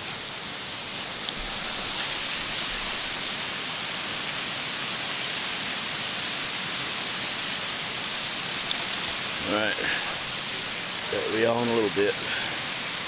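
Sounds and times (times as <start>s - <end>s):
creek rushing: 0.0s - 13.0s.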